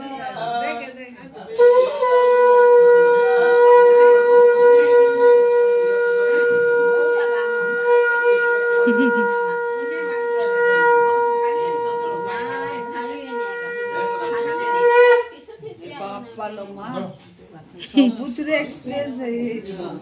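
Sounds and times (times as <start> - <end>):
conch shell blown: 1.5 - 15.4.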